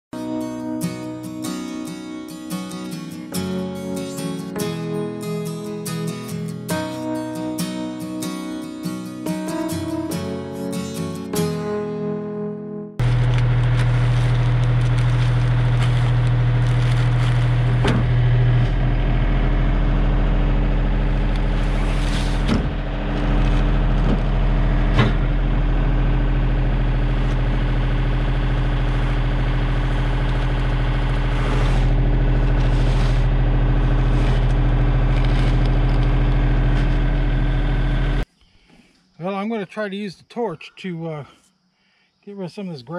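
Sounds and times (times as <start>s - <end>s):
engine idling: 13.0s - 38.2s.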